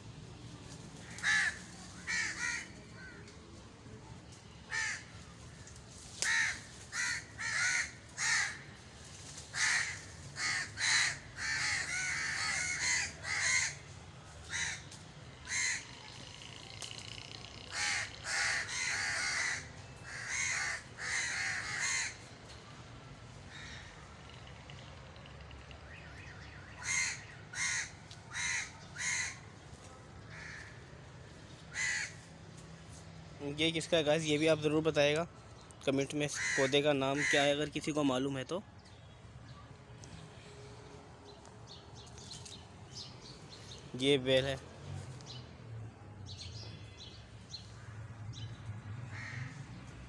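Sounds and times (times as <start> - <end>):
crows cawing: 1.0 - 3.3, 4.7 - 5.6, 6.2 - 8.8, 9.5 - 16.7, 17.4 - 22.4, 23.5 - 24.8, 26.8 - 29.6, 30.2 - 32.3, 36.3 - 37.6, 46.4 - 49.7.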